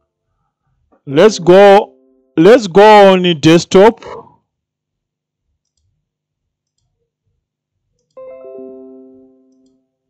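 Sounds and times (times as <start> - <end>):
computer mouse clicks: 5.6 - 6.0, 6.6 - 7.0, 8.0 - 8.2.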